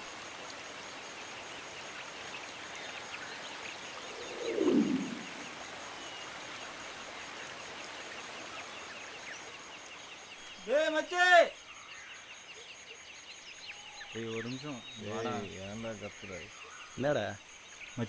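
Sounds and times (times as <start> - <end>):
stream pouring over rock: 0.0 - 9.5
whoosh falling in pitch: 4.2 - 5.5.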